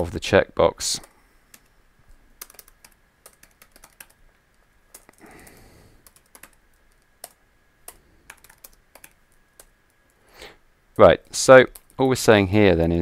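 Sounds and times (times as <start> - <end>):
typing on a keyboard: 2.4 - 4.2, 4.9 - 9.7, 11.7 - 12.0.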